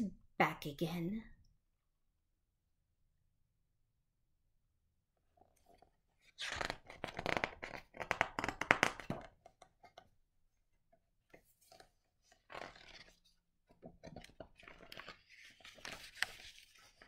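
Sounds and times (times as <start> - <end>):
book pages flipping: 5.4 - 10.1, 11.3 - 17.0.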